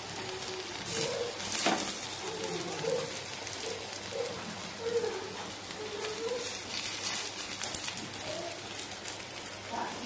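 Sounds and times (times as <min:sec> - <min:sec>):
warbling cooing bird call: 0:00.0 - 0:01.5, 0:02.2 - 0:06.6
food sizzling in oil: 0:00.0 - 0:10.0.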